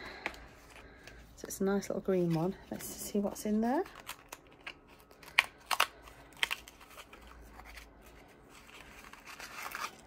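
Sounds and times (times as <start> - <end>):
faint paper rustling: 2.0 - 10.0.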